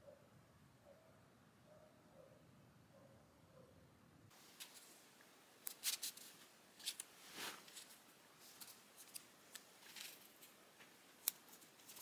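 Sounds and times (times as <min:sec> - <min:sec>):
soft rustles: 0:04.3 - 0:12.0.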